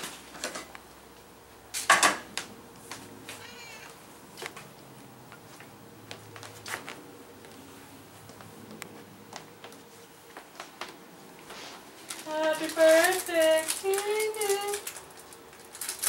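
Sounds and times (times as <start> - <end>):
cat meowing: 3.3 - 4.0.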